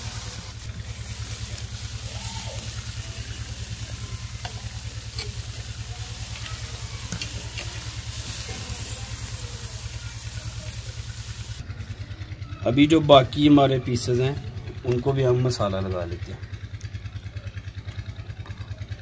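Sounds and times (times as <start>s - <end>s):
fish sizzling on grill: 0.0s - 11.6s
light metal ticks of tongs: 4.4s - 5.4s, 6.3s - 7.8s.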